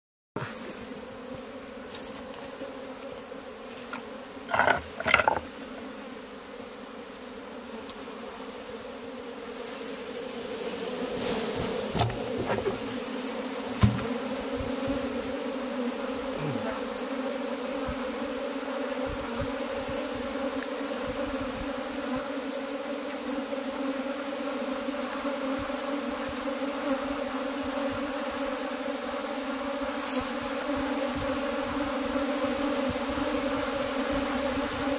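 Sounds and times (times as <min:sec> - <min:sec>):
bees buzzing: 0:00.4 - 0:34.9.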